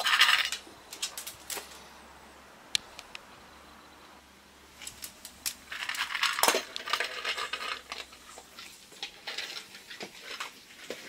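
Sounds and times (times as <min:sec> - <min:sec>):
kibble rattling in steel bowl: 0:00.0 - 0:01.7, 0:04.8 - 0:11.0.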